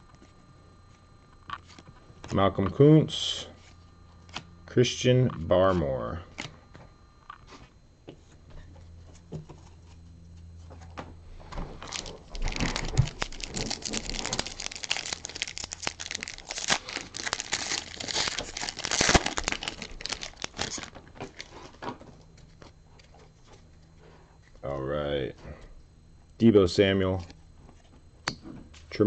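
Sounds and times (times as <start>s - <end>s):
foil wrapper crinkling and tearing: 11.8s - 22.8s.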